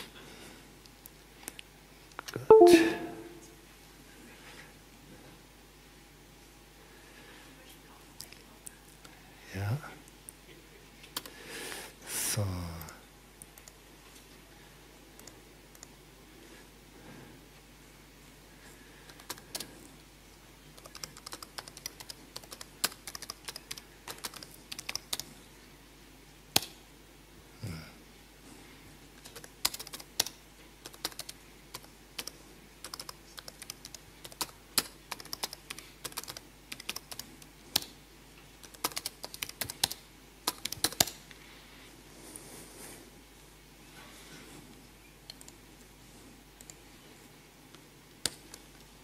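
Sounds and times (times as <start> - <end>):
typing on computer keyboard: 19.1 - 19.7, 20.8 - 25.3, 29.2 - 37.9, 38.6 - 41.2.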